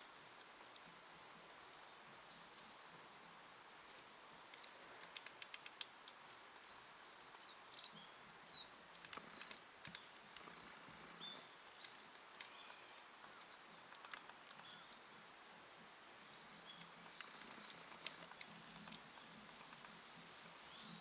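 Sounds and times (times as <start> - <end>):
woodpecker pecking at bark: 4.3 - 7.5, 8.9 - 15.1, 16.5 - 20.0
faint small bird chirps: 6.6 - 15.1, 16.2 - 21.0.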